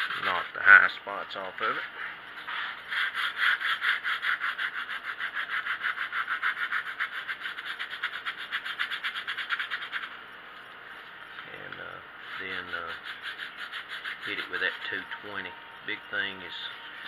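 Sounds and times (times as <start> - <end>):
sandpaper scratching on wood: 0.0 - 0.5, 2.5 - 10.2, 12.2 - 15.4.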